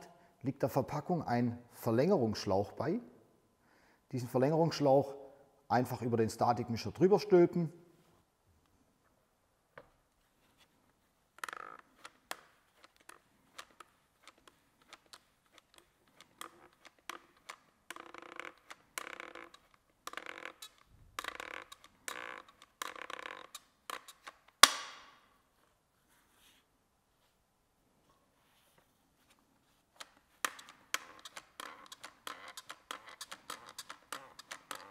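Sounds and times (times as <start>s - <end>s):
dispenser gun clicking and scraping: 30.4s - 34.9s.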